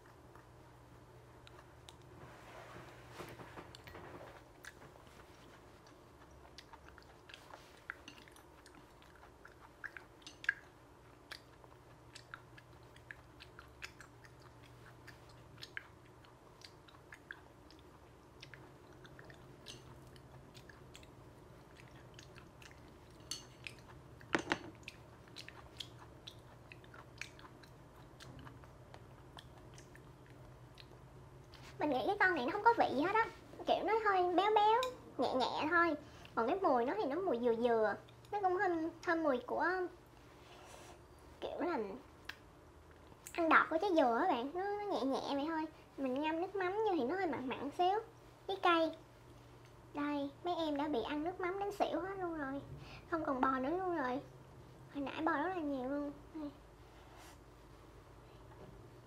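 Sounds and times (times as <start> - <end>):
wet chewing and mouth smacks: 4.6 - 31.8.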